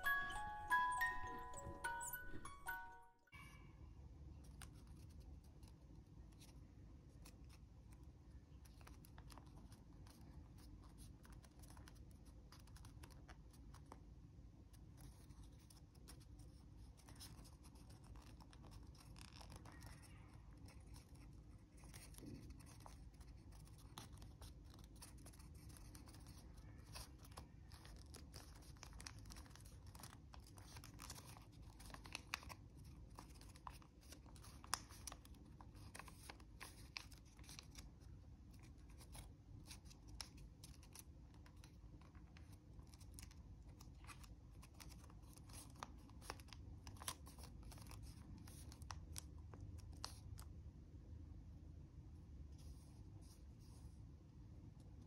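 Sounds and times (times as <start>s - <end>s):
paper crinkling while folded: 4.4s - 50.5s.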